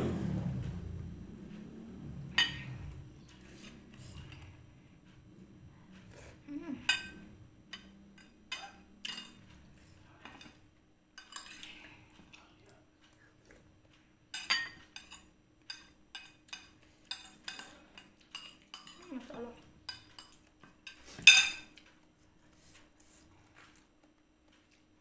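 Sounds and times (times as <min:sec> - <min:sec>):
spoon clinking on ceramic plate: 0:14.4 - 0:19.0, 0:19.9 - 0:21.7.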